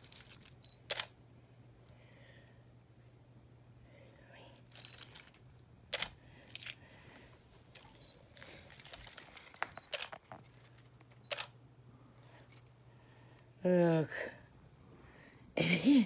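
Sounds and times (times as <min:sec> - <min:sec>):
metal pieces jingling: 0:04.7 - 0:05.5, 0:08.0 - 0:11.2.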